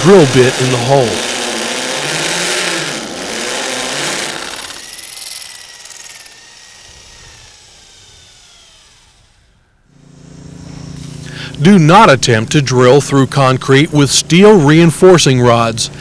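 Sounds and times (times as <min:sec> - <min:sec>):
hammer drill drilling into concrete: 0:00.0 - 0:09.6
drill motor winding down whine: 0:00.0 - 0:11.2.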